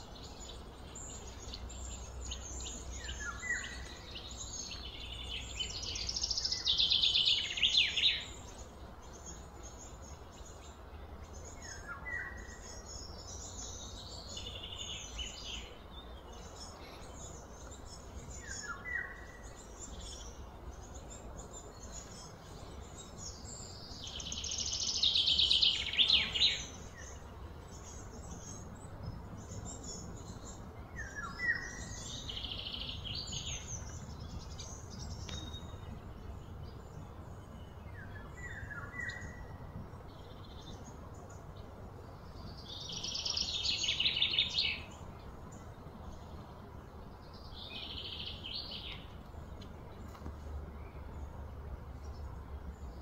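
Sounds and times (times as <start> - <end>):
bird chirps: 0.0 - 41.5
bird trilled songs: 0.0 - 53.0
steady low rumble: 19.4 - 53.0.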